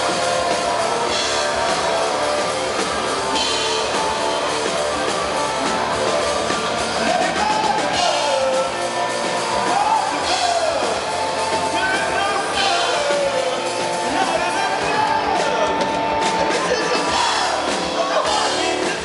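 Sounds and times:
distorted electric guitars: 0.0 - 19.0
drum kit: 0.0 - 19.0
man singing: 6.7 - 19.0.

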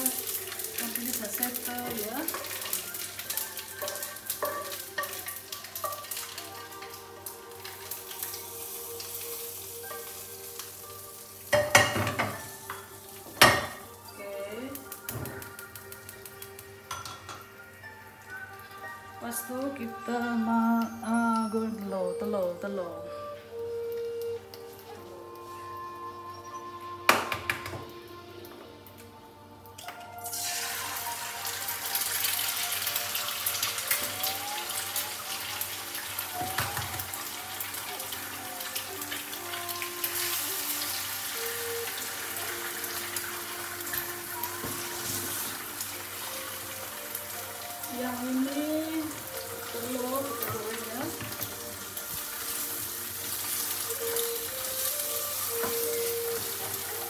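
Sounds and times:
hot oil sizzling: 0.0 - 57.0
pan clanking on burner grate: 3.8 - 6.3, 11.5 - 13.9.

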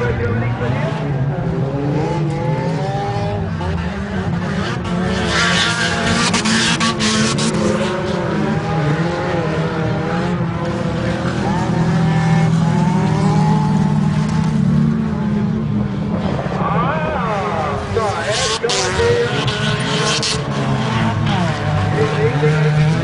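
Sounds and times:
race car engines revving: 0.0 - 23.0.

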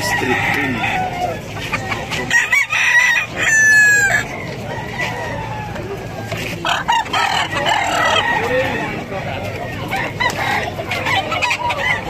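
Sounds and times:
roosters crowing: 0.0 - 12.0.

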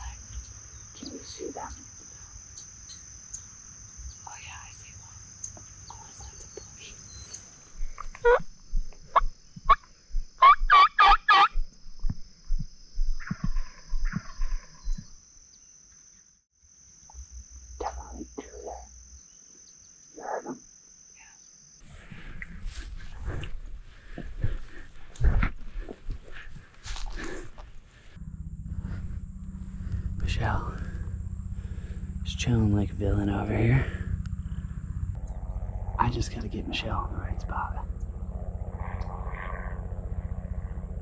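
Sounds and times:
turkey gobbling: 10.4 - 11.5.

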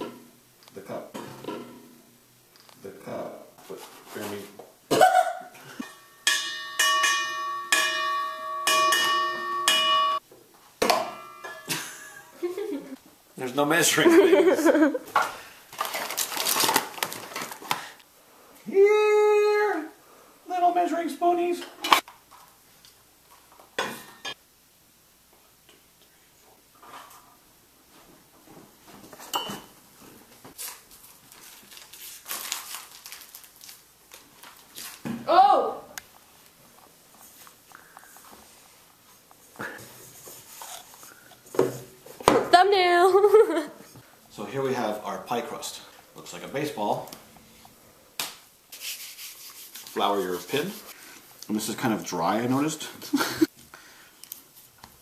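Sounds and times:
rustling and crinkling: 3.6 - 4.7, 15.4 - 18.0, 26.7 - 35.3
bell-like chimes: 5.8 - 10.2
clink of steel bowl: 5.8 - 10.2, 11.0 - 11.9.

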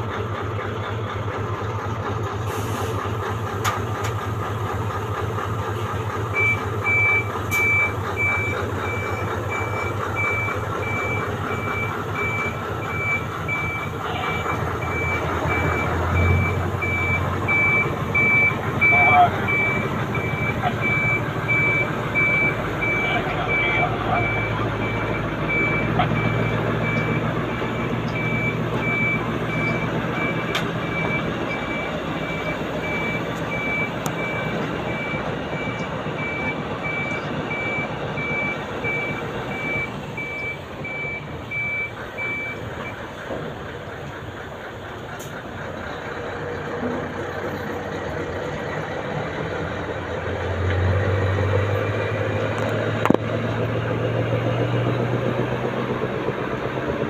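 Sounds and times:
diesel engine running: 0.0 - 57.0
reversing alarm beeps: 6.4 - 43.0.

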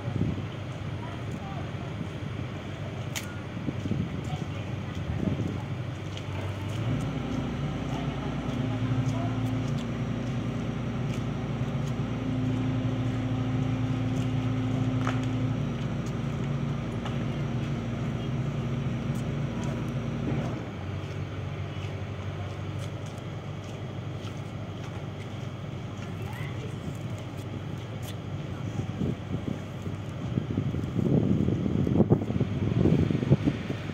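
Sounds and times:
excavator diesel engine running: 0.0 - 33.9.

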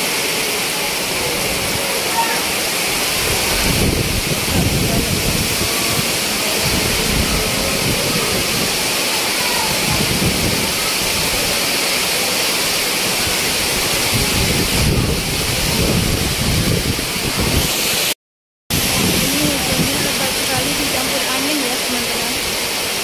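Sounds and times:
pouring rain hiss: 0.0 - 23.0
low rumble of wind gusts: 2.9 - 9.0, 9.6 - 11.6, 13.0 - 17.8, 18.7 - 21.4.

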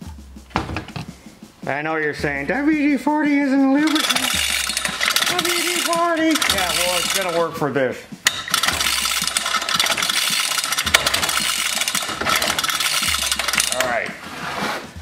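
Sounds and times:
small engine cranking clatter: 3.8 - 7.4, 8.3 - 14.0
starter rope pulled: 3.8 - 7.6, 8.2 - 15.0.

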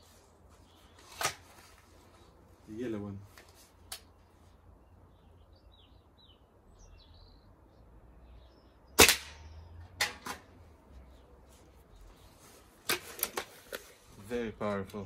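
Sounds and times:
air rifle shot: 9.0 - 10.4.

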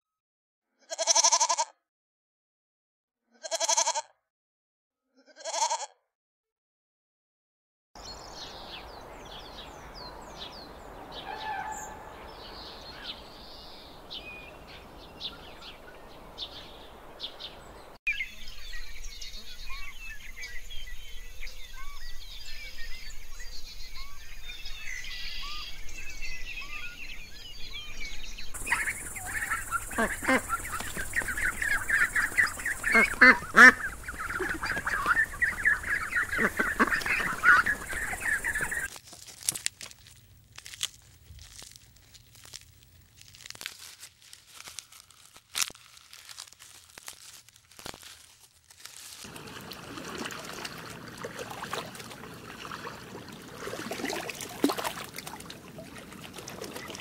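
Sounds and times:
birds calling and chirping: 8.0 - 38.9.

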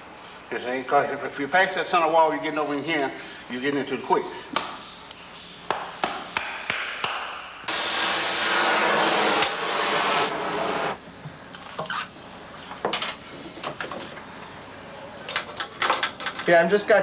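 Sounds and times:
welding torch hissing: 7.7 - 11.0.

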